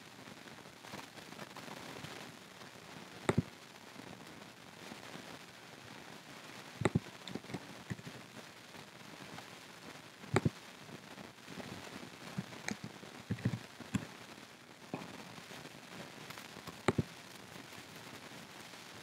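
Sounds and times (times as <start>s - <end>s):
steady hiss: 0.0s - 19.0s
mouse and keyboard clicks: 6.8s - 7.6s, 12.4s - 13.6s, 16.9s - 17.1s.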